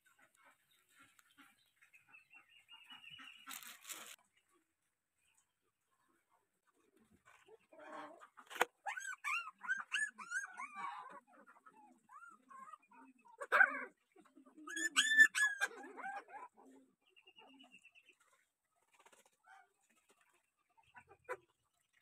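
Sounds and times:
puppy whimpering and yelping: 0:08.8 - 0:13.9, 0:14.7 - 0:16.6.

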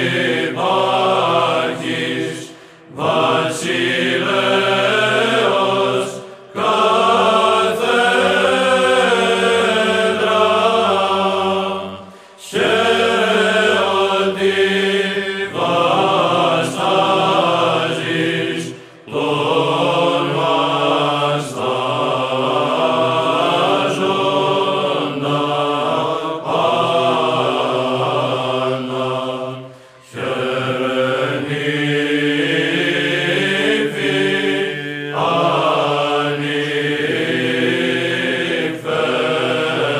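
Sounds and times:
voices singing church chant: 0:00.0 - 0:39.9.

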